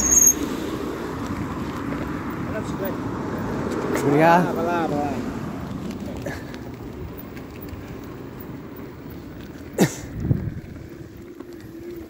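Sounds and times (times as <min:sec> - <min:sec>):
loud squeal dropping in pitch: 0:00.0 - 0:00.4
bicycle riding rumble: 0:00.0 - 0:12.0
wind on microphone: 0:10.1 - 0:11.8.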